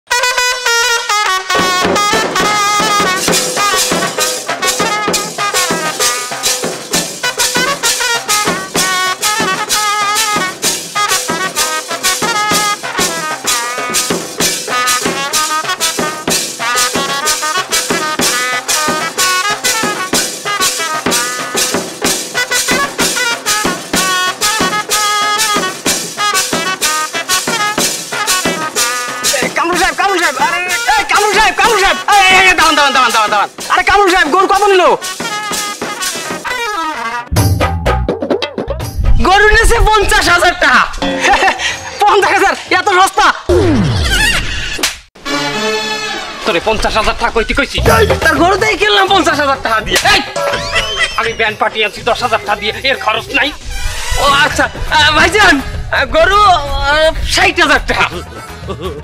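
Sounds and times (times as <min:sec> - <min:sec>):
festive band melody: 0:00.1 - 0:38.9, 0:47.7 - 0:55.8
fast drum beat: 0:01.5 - 0:36.5, 0:47.7 - 0:53.6.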